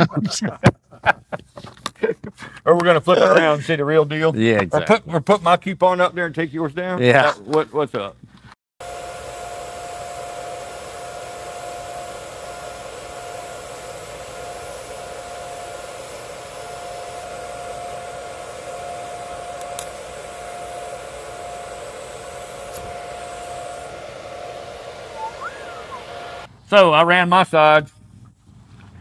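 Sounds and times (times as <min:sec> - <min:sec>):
welding arc hissing: 0:08.8 - 0:26.5.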